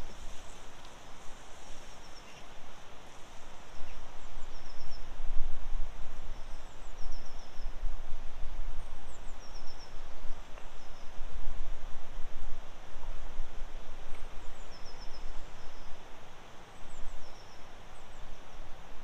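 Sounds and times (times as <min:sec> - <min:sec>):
songbird singing: 0:00.0 - 0:05.2, 0:06.2 - 0:07.9, 0:08.7 - 0:11.3, 0:14.0 - 0:18.7
wind rumbling on microphone: 0:00.0 - 0:17.4.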